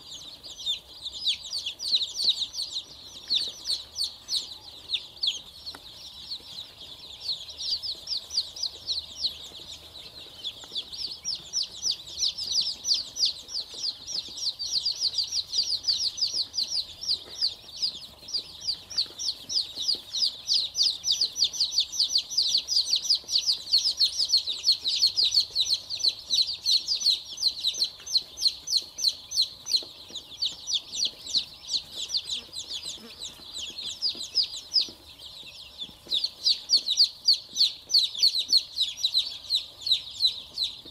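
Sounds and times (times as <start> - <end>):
chicks peeping: 0.0 - 40.9.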